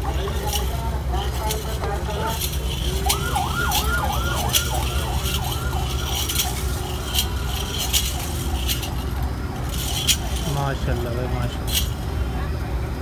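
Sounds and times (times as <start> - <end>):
steady low hum: 0.0 - 13.0
electronic siren warble: 3.0 - 11.0.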